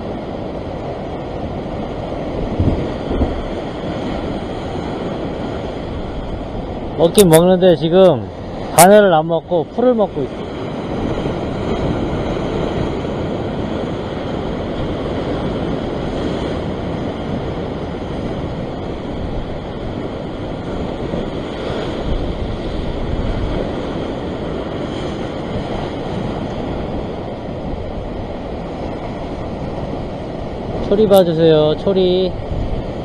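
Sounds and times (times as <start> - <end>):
sea surf breaking over rocks: 0.0 - 33.0.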